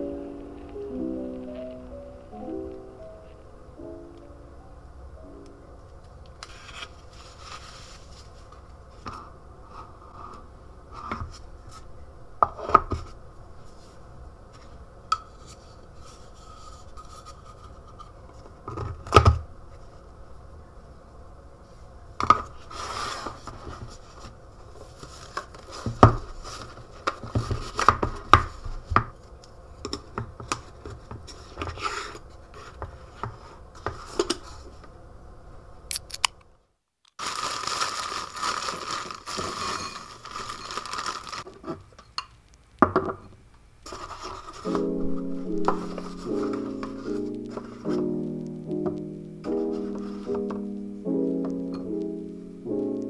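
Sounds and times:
faint steady hum: 0.0s - 53.0s
rubbing and scraping: 43.9s - 48.0s.

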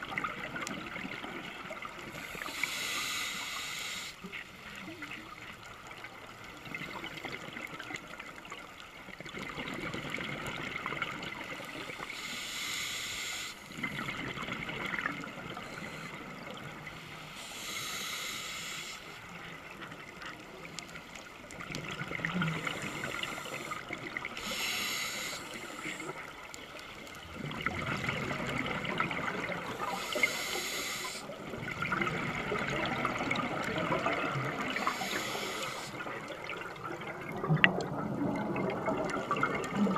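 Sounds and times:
exhaled bubbles gurgling: 0.0s - 2.9s, 4.2s - 12.2s, 13.7s - 18.4s, 19.2s - 39.9s
regulator inhale hiss: 2.1s - 4.4s, 11.7s - 13.8s, 15.5s - 19.4s, 22.4s - 26.9s, 29.6s - 31.5s, 34.6s - 36.4s.

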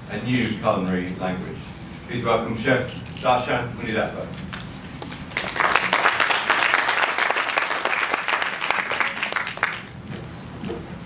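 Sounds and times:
audience applauding: 5.3s - 10.0s.

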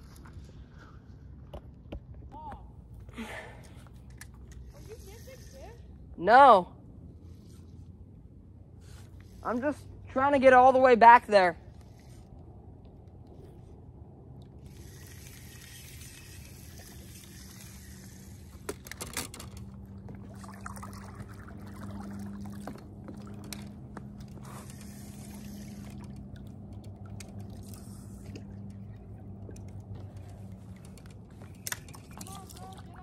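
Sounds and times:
steady low hum: 0.0s - 33.0s
water trickling and sloshing: 11.7s - 33.0s.

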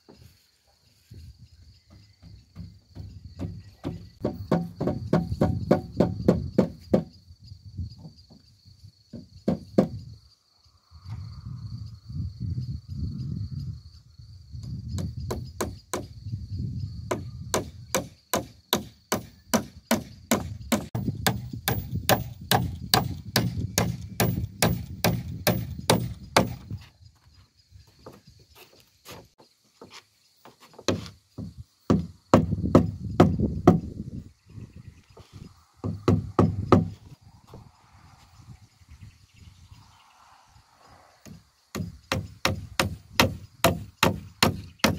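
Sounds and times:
crickets chirping: 0.0s - 44.9s
hatchet striking wood: 2.6s - 7.1s, 17.1s - 26.7s, 30.8s - 33.9s, 35.8s - 37.0s, 41.3s - 44.9s.

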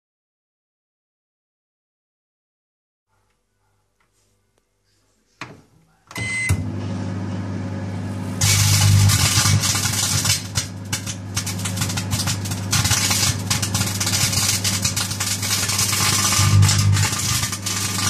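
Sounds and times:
microwave oven click: 6.1s - 7.2s
microwave oven humming: 6.1s - 18.0s
short beep: 6.2s - 6.6s
electrical arcing crackle: 8.4s - 18.0s.

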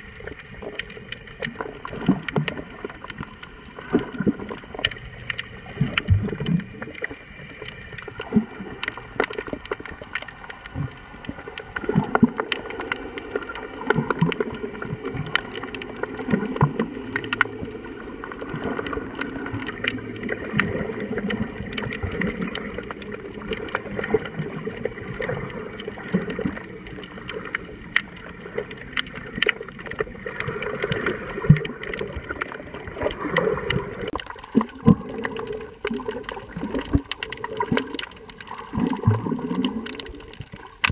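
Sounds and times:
sharp underwater clicks and crackles: 0.0s - 40.9s
underwater moving water murmur: 0.0s - 40.9s.

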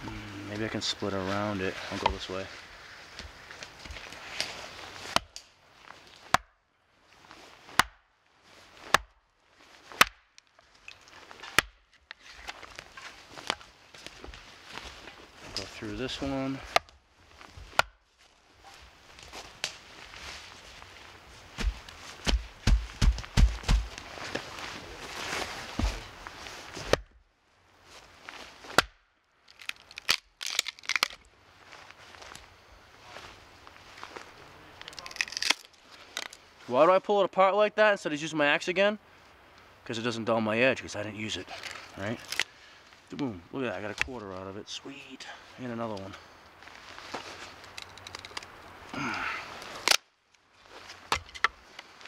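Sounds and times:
axe chopping log: 7.7s - 8.0s, 21.6s - 23.9s
firewood tearing and cracking: 8.8s - 15.7s, 28.6s - 31.3s, 34.8s - 36.5s, 41.5s - 43.2s, 46.9s - 52.0s
dull thumps: 21.6s - 24.0s.

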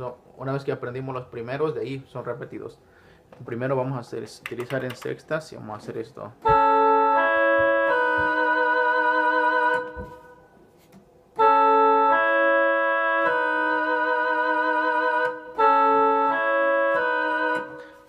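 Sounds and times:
keyboard playing trumpet line: 6.4s - 10.4s, 11.4s - 18.0s.

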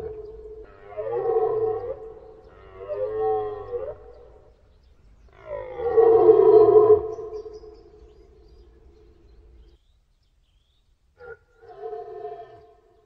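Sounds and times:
deer stag roaring: 0.0s - 4.4s.

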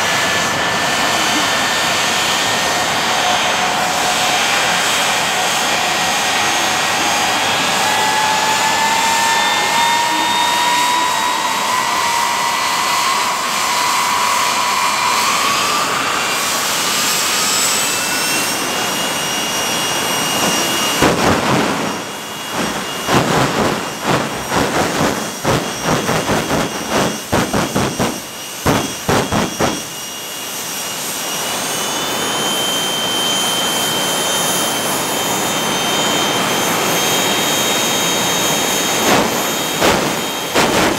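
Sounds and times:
jet engine whine: 0.0s - 40.9s
afterburner blasts: 18.3s - 30.1s, 38.9s - 40.9s.

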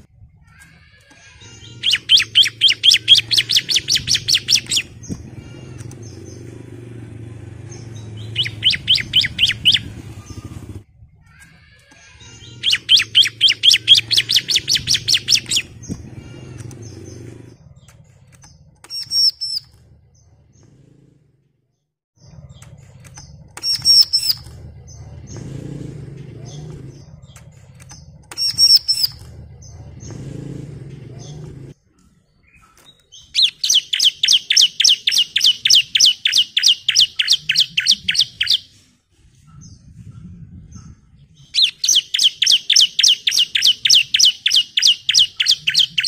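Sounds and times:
bird trilling: 0.0s - 20.7s, 22.2s - 25.8s, 26.4s - 30.5s, 32.4s - 38.8s, 41.4s - 46.0s
short high bird calls: 0.5s - 6.6s, 7.9s - 10.8s, 11.4s - 17.4s, 28.3s - 29.8s, 33.2s - 38.8s.

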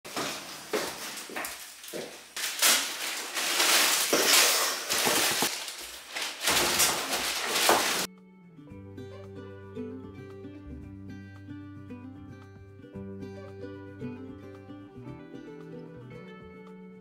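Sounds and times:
plastic bags rustling: 0.1s - 8.1s
acoustic guitar music: 6.8s - 17.0s.

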